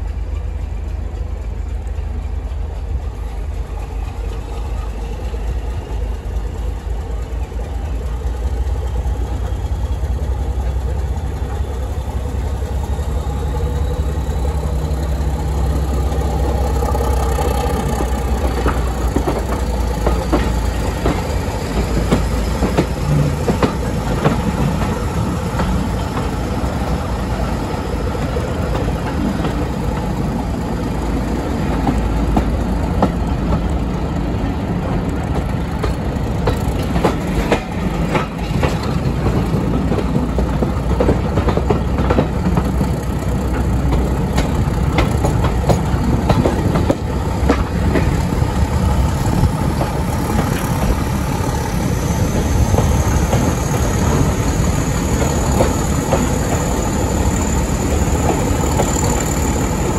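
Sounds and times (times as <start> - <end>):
train wheels rattling on rails: 0.0 - 59.9.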